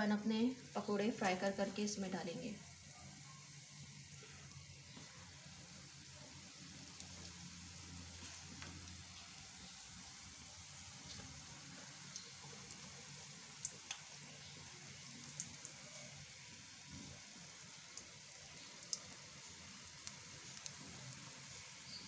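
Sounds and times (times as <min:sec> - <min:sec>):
deep-frying sizzle: 0:00.0 - 0:22.0
oil popping and crackling: 0:04.0 - 0:22.0.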